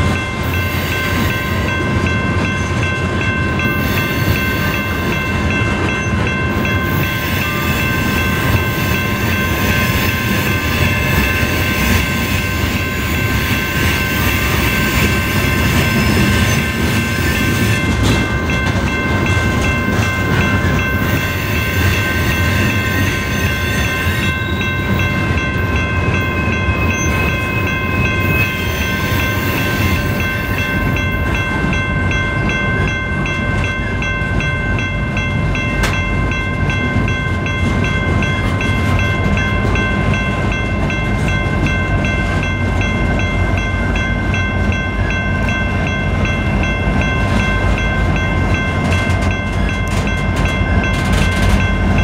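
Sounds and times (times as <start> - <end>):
freight train rumbling past: 0.0 - 52.0.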